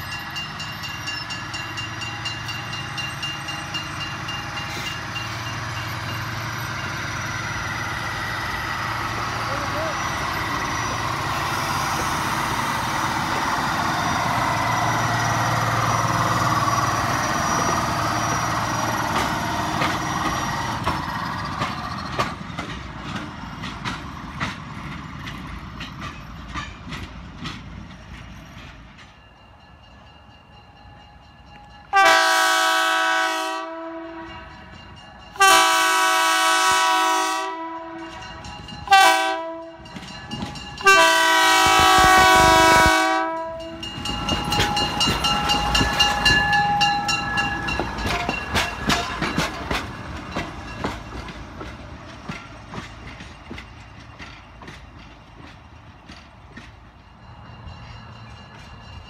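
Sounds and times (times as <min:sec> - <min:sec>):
train engine and wheels rumbling: 0:00.0 - 0:59.0
train air horn blasts: 0:31.9 - 0:34.3, 0:35.4 - 0:38.1, 0:38.9 - 0:39.8, 0:40.8 - 0:43.7.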